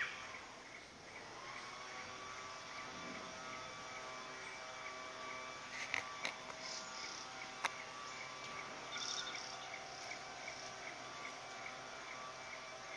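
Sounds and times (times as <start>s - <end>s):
low steady hum: 0.0s - 12.9s
insect chirping: 6.6s - 12.9s.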